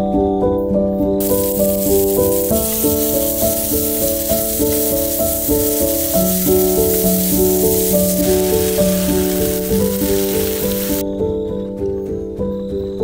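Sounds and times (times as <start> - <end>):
meat and onions sizzling in pan: 1.2 - 11.0.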